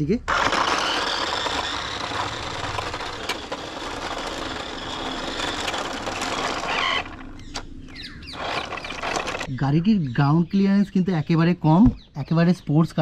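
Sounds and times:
toy car motor and wheels running: 0.3 - 9.5.

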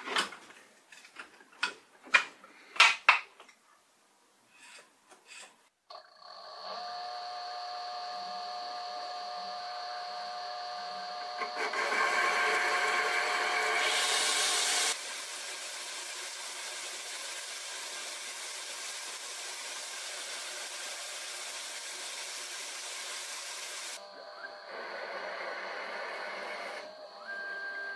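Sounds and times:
lathe motor whine: 5.9 - 15.0, 23.9 - 27.9
lathe tool cutting metal: 6.4 - 15.0.

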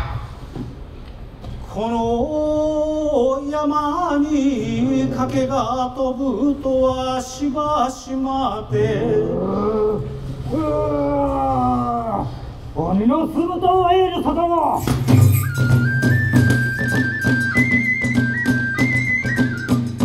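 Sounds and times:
man chanting a song: 1.7 - 14.9.

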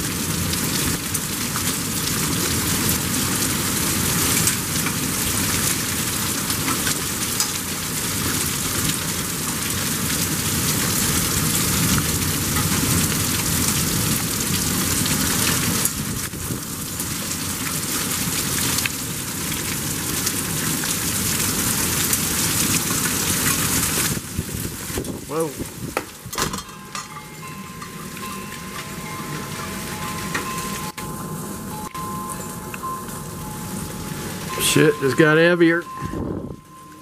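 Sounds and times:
torrential rain pouring: 0.0 - 37.0
wavering tone: 26.6 - 37.0.

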